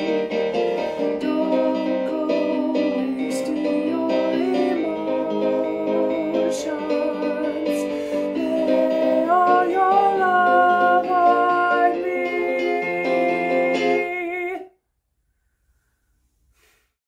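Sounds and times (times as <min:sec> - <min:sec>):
instrumental accompaniment: 0:00.0 - 0:14.6
man singing: 0:01.2 - 0:14.7.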